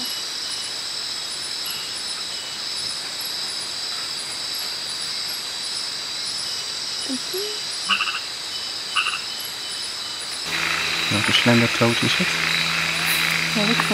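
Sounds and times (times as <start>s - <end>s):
insects droning: 0.0s - 13.9s.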